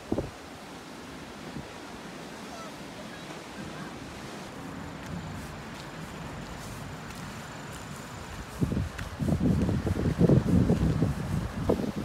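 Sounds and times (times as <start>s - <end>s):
wind buffeting microphone: 0.0s - 0.5s, 3.2s - 12.0s
sea surf washing ashore: 0.0s - 12.0s.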